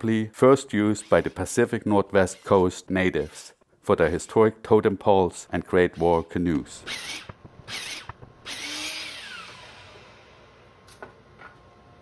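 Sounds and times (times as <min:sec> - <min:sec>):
miter saw cutting wood: 0:06.8 - 0:10.3.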